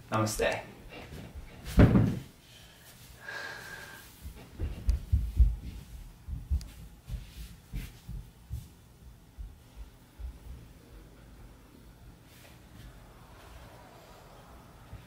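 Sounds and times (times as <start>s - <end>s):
child's footsteps on wooden floor: 1.0s - 2.3s, 4.2s - 10.6s.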